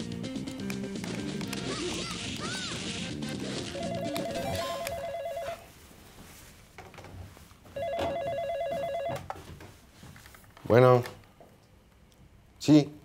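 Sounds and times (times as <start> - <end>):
telephone ringing with warbling trill: 3.6 - 5.6, 7.8 - 9.2.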